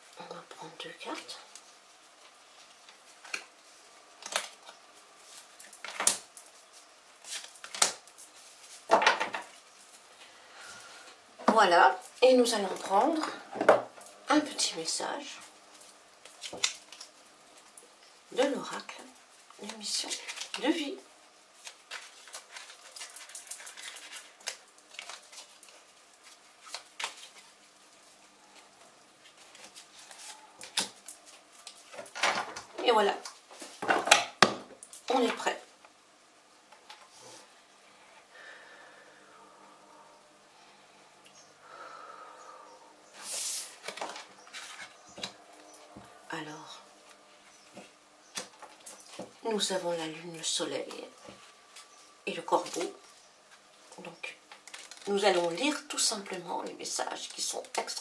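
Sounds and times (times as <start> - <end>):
cards rustling and snapping: 7.2 - 8.8, 21.6 - 27.6, 54.5 - 55.6.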